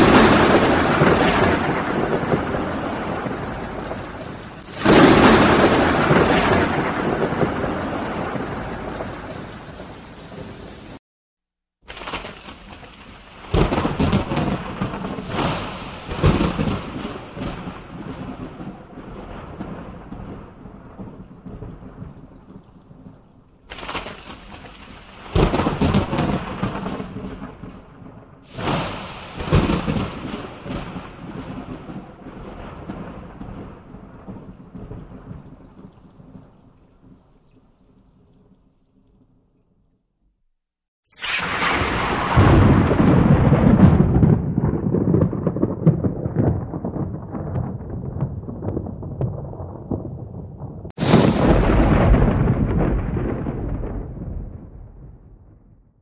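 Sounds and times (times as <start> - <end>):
steady rain hiss: 0.0 - 11.0
thunder claps and rumbles: 0.0 - 11.0, 11.9 - 37.3, 41.3 - 56.0.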